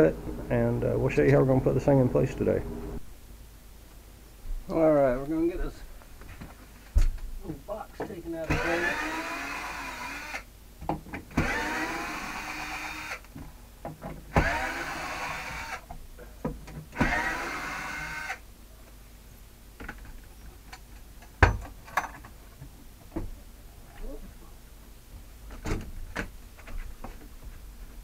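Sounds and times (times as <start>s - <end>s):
cordless drill spinning up: 8.5s - 10.4s, 11.4s - 13.2s, 14.4s - 15.8s, 17.0s - 18.4s.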